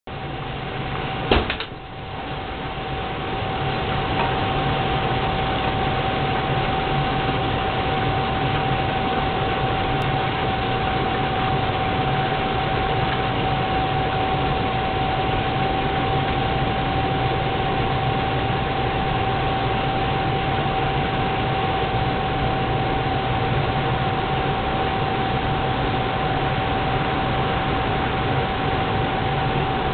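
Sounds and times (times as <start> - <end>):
gas burner hissing: 0.1 - 29.9.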